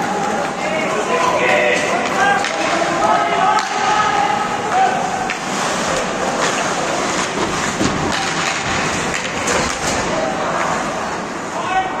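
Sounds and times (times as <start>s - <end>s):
hockey sticks and puck clacking: 0.2s - 4.1s, 5.2s - 10.2s.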